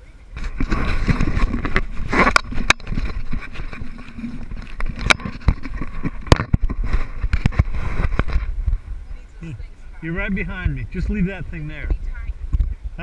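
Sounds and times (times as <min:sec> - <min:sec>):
low rumble: 0:00.3 - 0:13.0
camera knocks and scrapes: 0:00.4 - 0:08.8.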